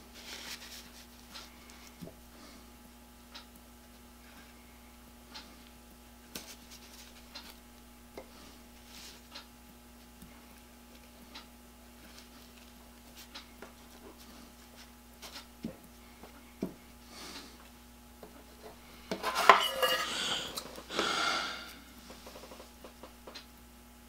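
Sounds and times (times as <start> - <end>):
metal shears clattering: 19.2 - 20.6.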